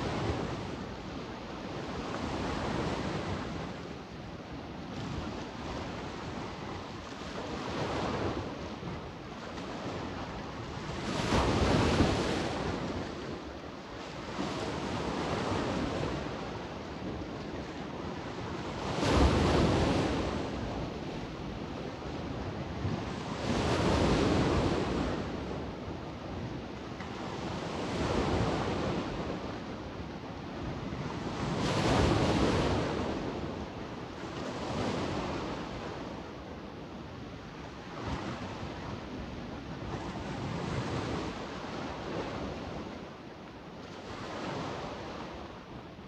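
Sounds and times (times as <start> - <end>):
waves breaking: 4.9 - 36.4.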